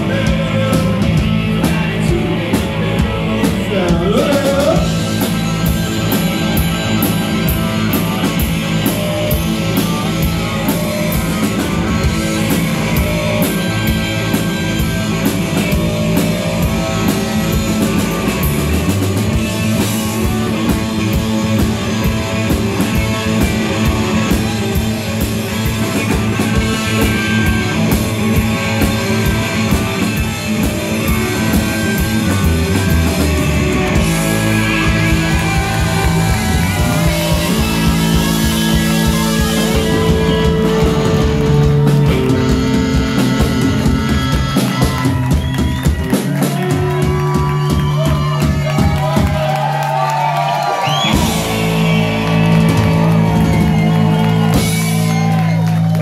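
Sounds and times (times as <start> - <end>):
electric bass: 0.0 - 56.0
harmonica: 36.4 - 48.4.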